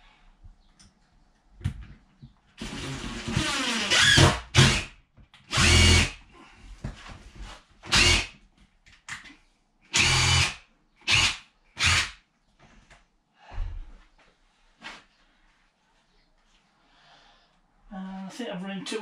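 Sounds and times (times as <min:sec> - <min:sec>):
cordless drill driving screws: 0:02.6 - 0:04.9, 0:05.5 - 0:06.2, 0:07.9 - 0:08.3, 0:09.9 - 0:12.2.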